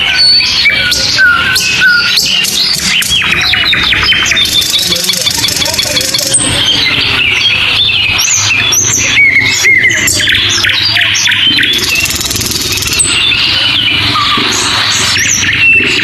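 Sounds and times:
forest background: 0:00.0 - 0:16.0
high chirping animal calls: 0:00.0 - 0:16.0.

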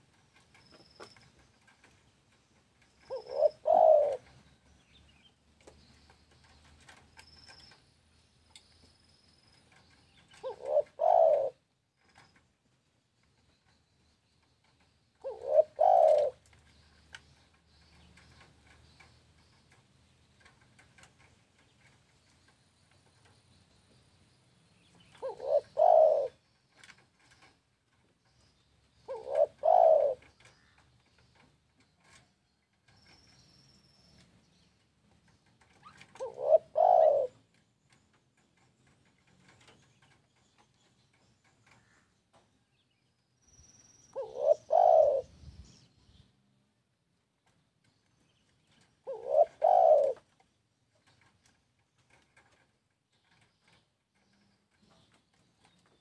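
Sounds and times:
dove cooing: 0:03.0 - 0:04.6, 0:10.3 - 0:12.2, 0:14.7 - 0:17.4, 0:25.0 - 0:27.6, 0:29.0 - 0:30.8, 0:35.6 - 0:37.5, 0:44.2 - 0:45.6, 0:48.8 - 0:50.4.

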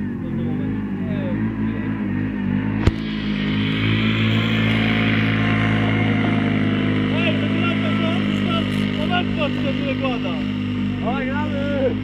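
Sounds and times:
quad engine revving: 0:00.0 - 0:12.0
sharp click: 0:02.8 - 0:03.1.

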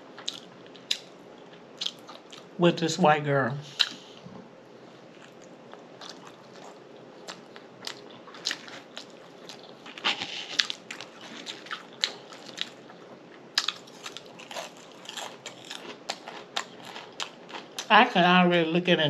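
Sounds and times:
person chewing with lip smacks: 0:05.2 - 0:12.8, 0:13.6 - 0:17.9.

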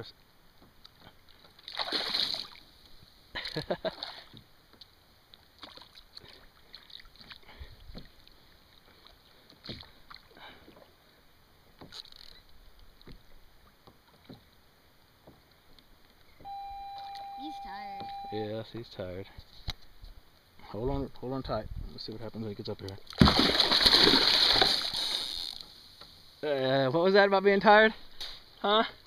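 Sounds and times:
water splashing: 0:01.2 - 0:02.7, 0:05.4 - 0:10.9, 0:23.1 - 0:26.0.

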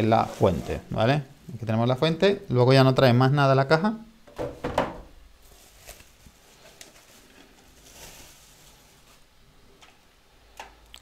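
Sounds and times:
plastic bag rustling: 0:00.0 - 0:01.2, 0:05.4 - 0:09.4.

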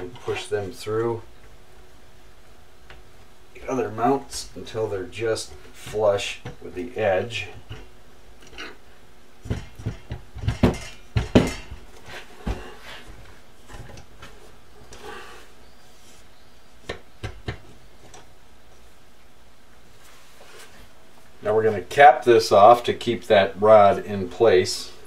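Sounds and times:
metal rods clinking and knocking: 0:09.5 - 0:11.9.

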